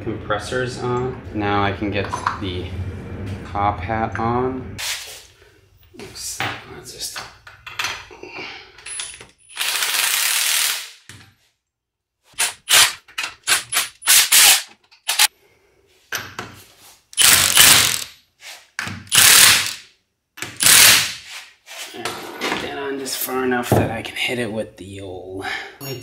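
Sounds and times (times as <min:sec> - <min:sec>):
cordless impact wrench bursts: 0:09.6 - 0:11.0, 0:12.4 - 0:15.3, 0:17.2 - 0:18.1, 0:19.1 - 0:19.8, 0:20.6 - 0:21.2.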